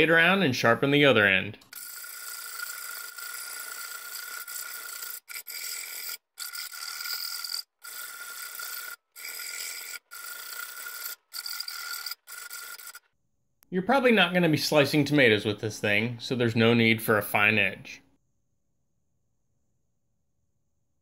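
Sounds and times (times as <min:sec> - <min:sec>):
metal file rasping on steel blade: 0:01.7 - 0:13.0.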